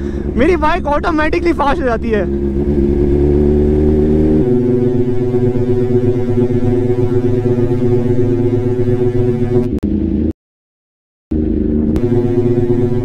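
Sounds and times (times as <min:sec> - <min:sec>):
synthesizer chord drone: 0:00.0 - 0:10.3, 0:11.3 - 0:13.0.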